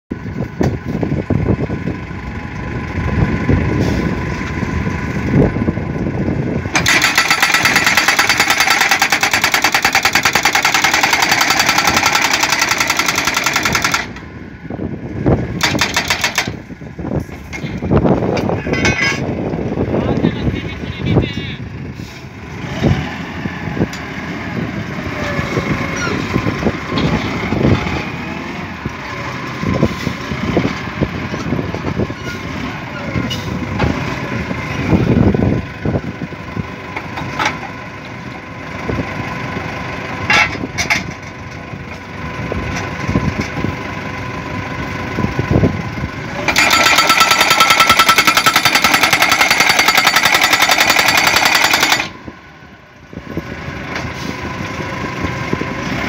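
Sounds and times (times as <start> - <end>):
pile driver engine running: 0.1 - 56.0
hammer pounding steel post: 15.6 - 16.6, 46.5 - 52.1.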